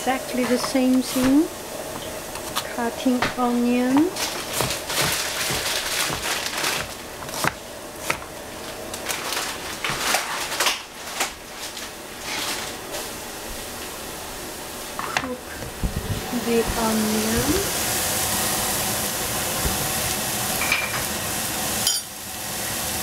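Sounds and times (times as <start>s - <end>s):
knife chopping on plastic board: 2.4s - 8.3s.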